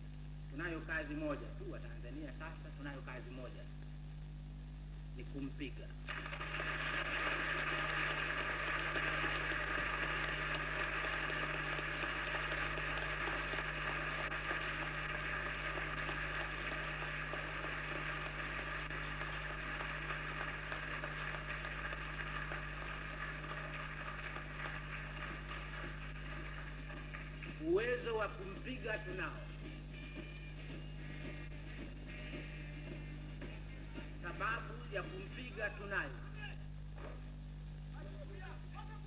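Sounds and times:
recording hiss and mains hum: 0.0s - 39.0s
crowd applauding and cheering: 6.1s - 28.4s.

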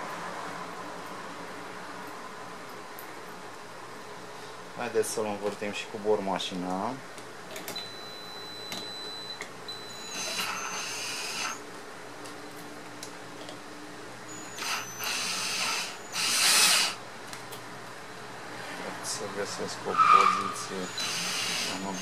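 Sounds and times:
cordless drill running: 10.0s - 11.6s, 14.4s - 17.0s, 20.9s - 22.0s.

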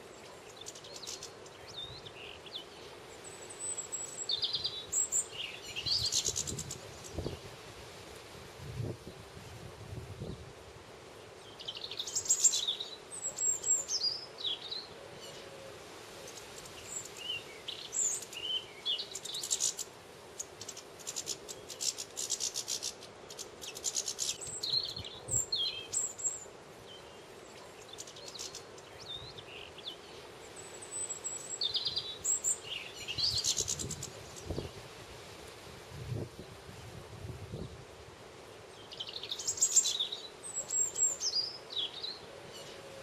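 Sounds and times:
finches twittering and trilling: 16.3s - 34.7s, 38.8s - 42.8s.

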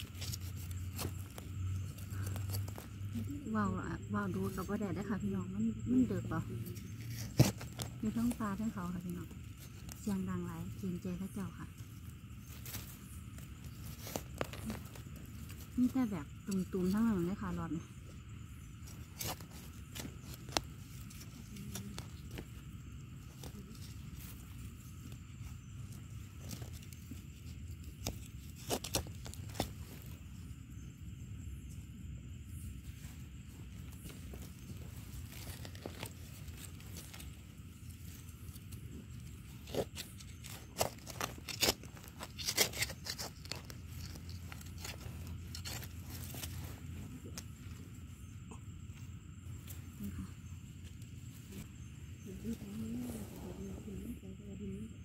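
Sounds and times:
earth crunching and crumbling: 0.0s - 3.2s, 6.6s - 17.3s, 33.0s - 47.7s
knife scraping soil: 0.0s - 30.4s, 33.2s - 47.8s
hand rustling through dry leaves: 6.2s - 17.1s, 32.6s - 47.6s.

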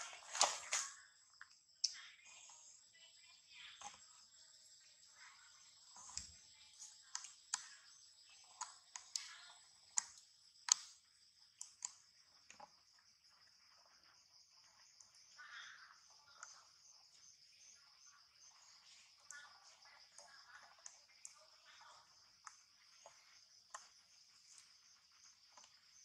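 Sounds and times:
high-pitched insect hum: 0.0s - 26.0s
sharp clicks: 10.0s - 11.0s.

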